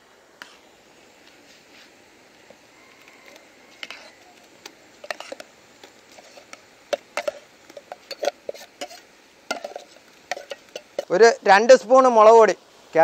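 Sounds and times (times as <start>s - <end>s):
metal spoon scraping steel bowl: 3.2s - 4.4s, 5.0s - 5.5s, 6.1s - 11.1s.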